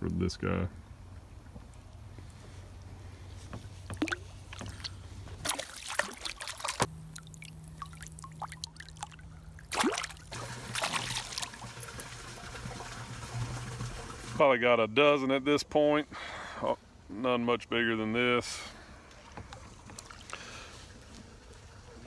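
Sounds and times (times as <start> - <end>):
fish splashing at water surface: 3.9 - 14.0.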